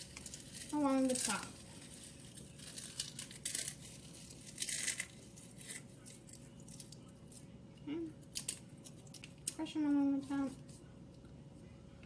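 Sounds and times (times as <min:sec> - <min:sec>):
tortilla chips crunching: 0:00.0 - 0:07.5, 0:08.2 - 0:09.6.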